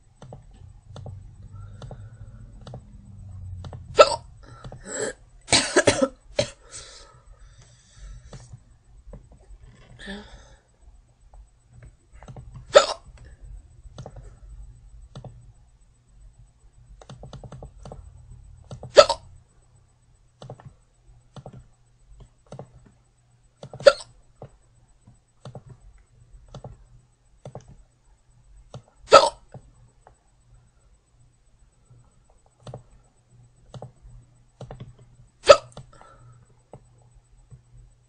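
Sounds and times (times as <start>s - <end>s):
girl hiccuping: 4.0s - 6.6s, 12.7s - 13.0s, 19.0s - 19.2s, 23.8s - 24.1s, 29.1s - 29.4s, 35.4s - 35.8s.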